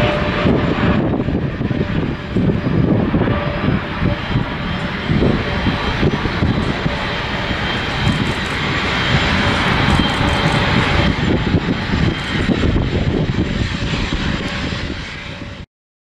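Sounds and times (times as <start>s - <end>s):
jet engines roaring: 0.0s - 15.7s.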